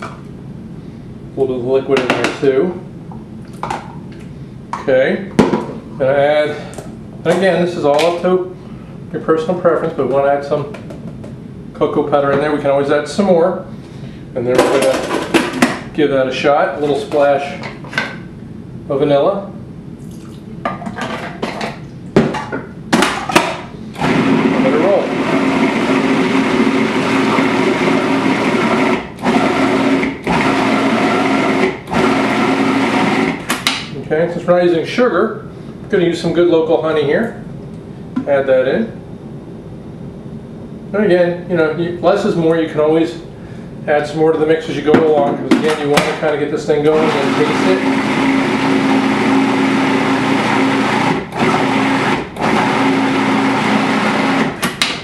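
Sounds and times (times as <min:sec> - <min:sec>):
food processor motor blending: 0:24.0 - 0:33.4, 0:46.9 - 0:54.6.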